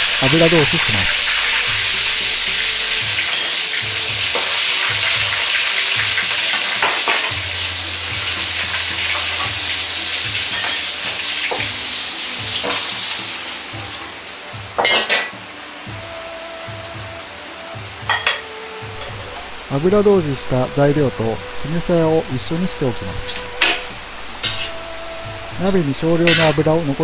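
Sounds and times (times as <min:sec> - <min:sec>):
vegetables sizzling in hot oil: 0:00.0 - 0:27.0
metal wok clanks: 0:02.9 - 0:09.6, 0:10.2 - 0:13.4, 0:14.8 - 0:15.5, 0:23.6 - 0:24.8, 0:26.2 - 0:26.6.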